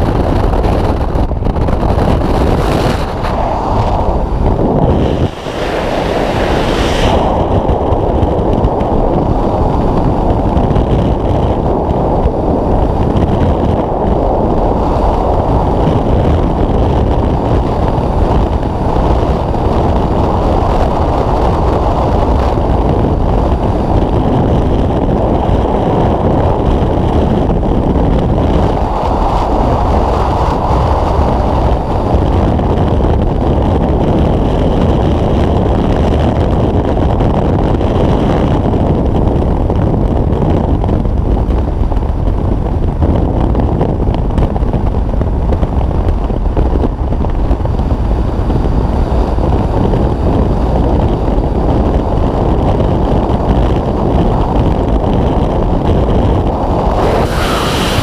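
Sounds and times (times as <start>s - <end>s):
wind rushing over microphone: 0.0s - 58.0s.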